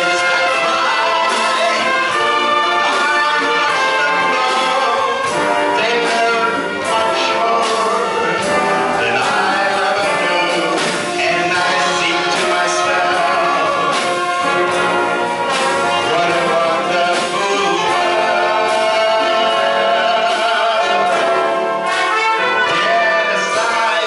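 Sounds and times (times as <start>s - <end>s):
wind band playing slow piece: 0.0s - 24.0s
man singing into microphone: 3.0s - 13.9s, 15.9s - 21.2s, 22.6s - 24.0s.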